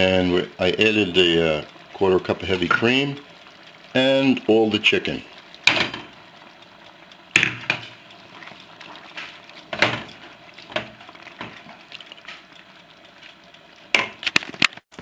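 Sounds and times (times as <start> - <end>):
wooden spoon knocking on pan: 5.7 - 6.1, 7.3 - 8.0.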